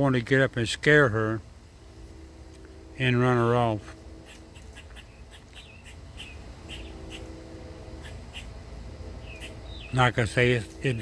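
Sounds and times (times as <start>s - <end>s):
faint steady hum: 0.0s - 11.0s
birds chirping: 2.6s - 11.0s.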